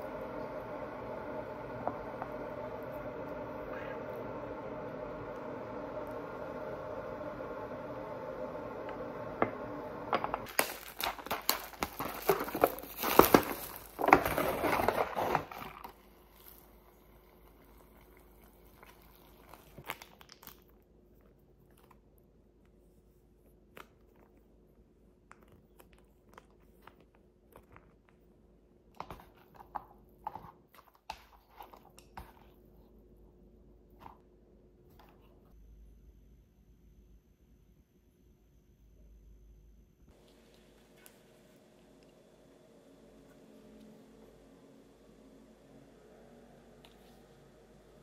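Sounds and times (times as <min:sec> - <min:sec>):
steady hum: 0:00.0 - 0:19.0
plastic packaging tearing and crinkling: 0:10.4 - 0:16.7, 0:18.9 - 0:20.7.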